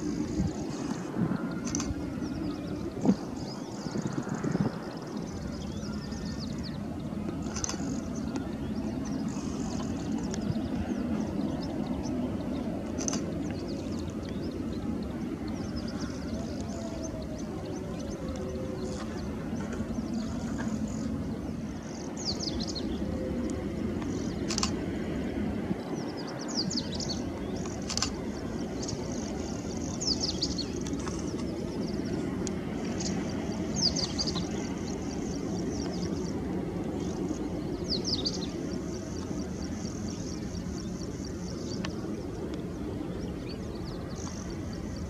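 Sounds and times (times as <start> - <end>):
jet engines low rumble: 0.0 - 45.0.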